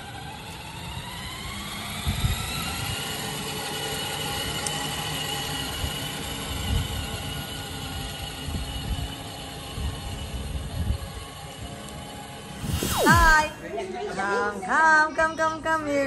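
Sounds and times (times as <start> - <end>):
toy truck motors whining: 0.0 - 12.5.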